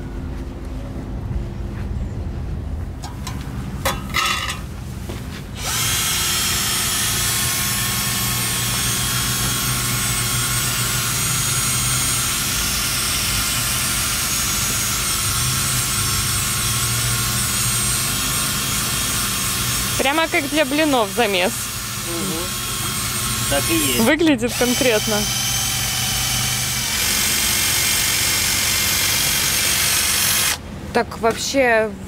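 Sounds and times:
drill with paddle mixer stirring: 0:05.6 - 0:30.6.

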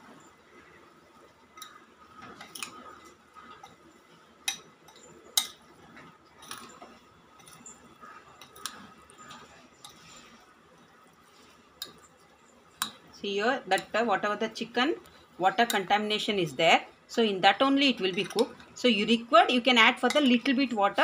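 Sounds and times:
spoon stirring raw chicken: 0:06.4 - 0:10.5, 0:11.1 - 0:16.3, 0:17.8 - 0:19.1, 0:19.8 - 0:21.0.

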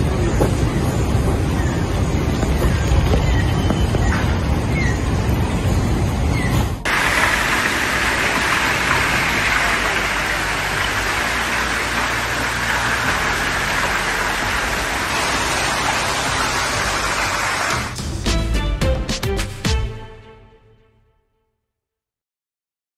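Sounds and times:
hailstones pelting down: 0:06.9 - 0:17.9.

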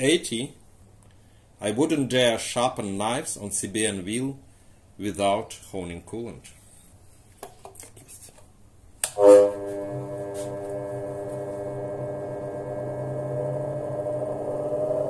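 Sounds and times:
bench grinder motor humming: 0:09.2 - 0:15.0.

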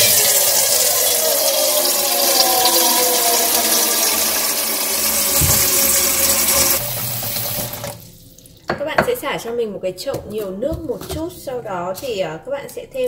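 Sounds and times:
tap water pouring into steel basin: 0:00.0 - 0:08.7.

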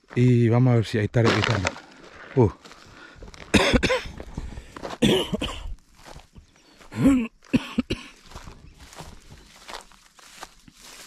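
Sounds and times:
man coughing and clearing throat: 0:03.5 - 0:04.2, 0:04.9 - 0:05.8, 0:06.9 - 0:08.3.

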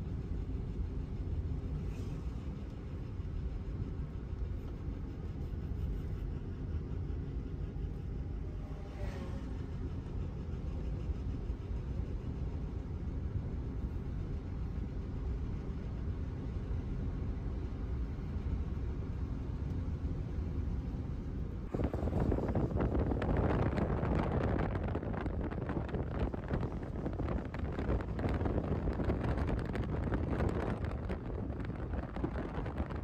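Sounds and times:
wind noise: 0:00.0 - 0:33.0.

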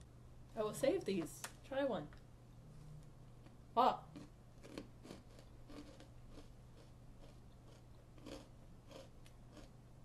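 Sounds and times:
person chewing crunchy snack: 0:04.1 - 0:09.8.

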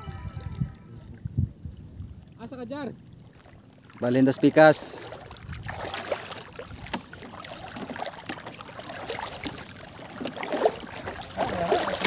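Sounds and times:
seawater sloshing around legs: 0:03.2 - 0:12.0.

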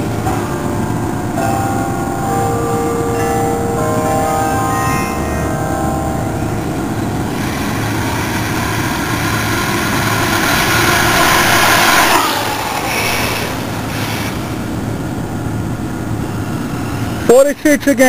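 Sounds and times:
rc truck motor and tyres whirring: 0:07.3 - 0:14.9.

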